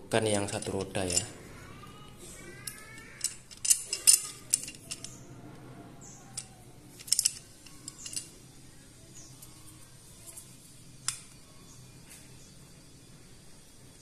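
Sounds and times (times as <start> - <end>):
metal hardware clinking and rattling: 0.4 - 1.4, 2.5 - 5.2, 6.3 - 8.4.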